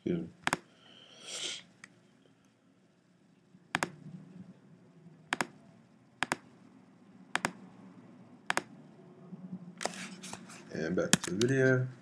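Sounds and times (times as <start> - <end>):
computer mouse clicking: 0.4 - 0.7, 3.7 - 4.0, 5.3 - 5.6, 6.2 - 6.5, 7.3 - 7.6, 8.5 - 8.7, 11.1 - 11.6.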